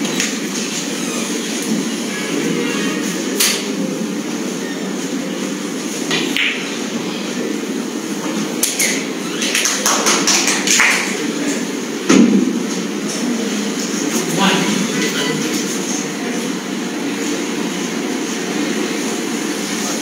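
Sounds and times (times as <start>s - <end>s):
low hum of hall: 0.0s - 20.0s
cue tip striking ball: 6.0s - 7.0s
snooker balls clicking: 6.1s - 6.7s.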